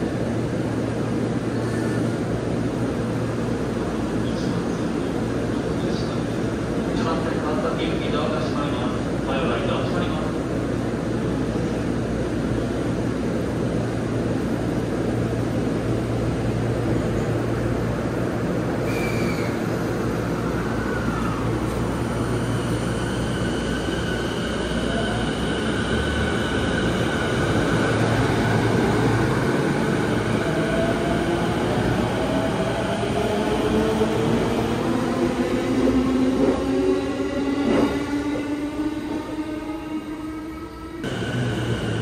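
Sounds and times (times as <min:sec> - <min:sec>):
train low hum: 0:00.0 - 0:42.0.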